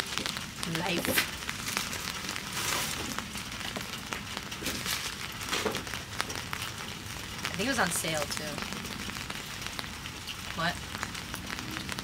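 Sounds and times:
plastic packaging crinkling: 0.0s - 8.4s.

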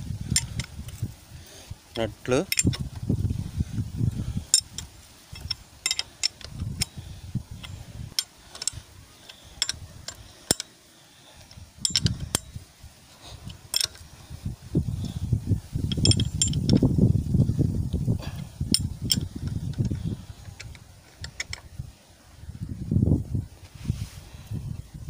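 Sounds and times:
spanner clinking on metal nuts: 0.3s - 1.0s, 2.4s - 2.9s, 4.4s - 10.8s, 11.4s - 12.7s, 13.4s - 14.1s, 15.8s - 16.9s, 18.7s - 21.7s
sharp metal clicks: 2.5s - 2.9s, 4.5s - 7.0s, 7.6s - 10.8s, 11.4s - 12.6s, 13.4s - 14.1s, 15.8s - 16.9s, 18.7s - 21.7s.

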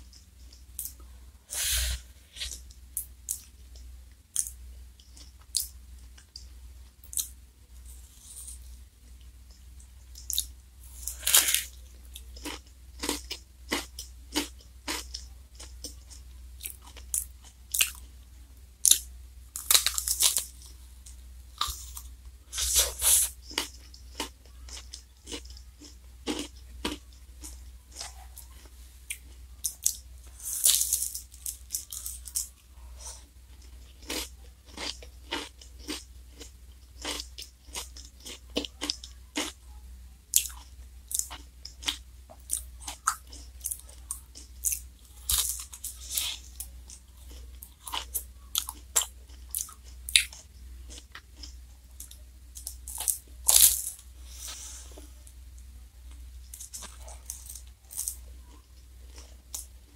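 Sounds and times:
steady low hum: 0.0s - 59.9s
crunching and chewing wafer cone: 10.2s - 18.2s, 18.8s - 20.8s, 21.6s - 39.7s, 40.3s - 55.2s, 56.1s - 59.9s.

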